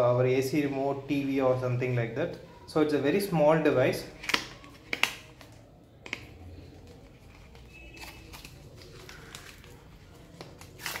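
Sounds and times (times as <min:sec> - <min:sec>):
bubble wrap rustling: 0:06.6 - 0:11.0.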